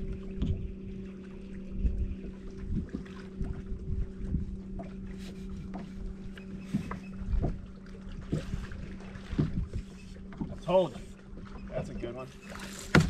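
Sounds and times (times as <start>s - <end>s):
wind on microphone: 0.0s - 1.0s, 1.6s - 10.6s
electric trolling motor humming: 0.0s - 13.0s.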